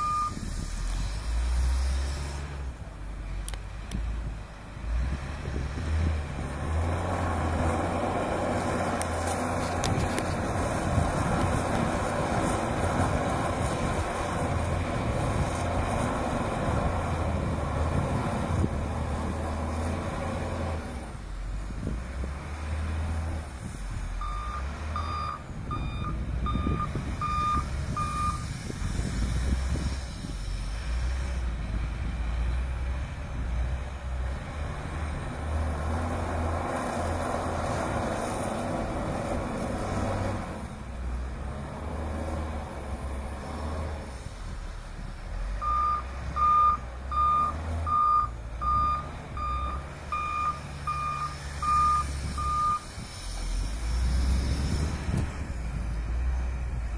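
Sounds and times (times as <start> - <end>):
reversing alarm beeps: 0.0 - 0.4, 24.2 - 28.4, 45.6 - 52.8
diesel engine under load: 0.0 - 56.9.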